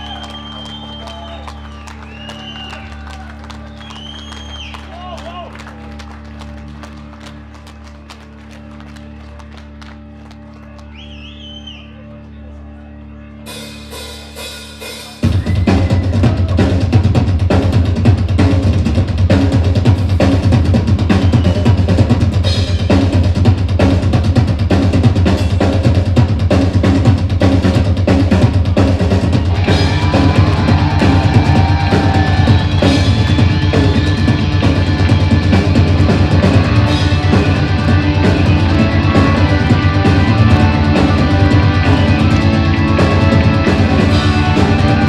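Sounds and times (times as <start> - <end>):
drums: 0.0 - 11.9, 13.5 - 45.0
rock band playing live: 13.5 - 45.0.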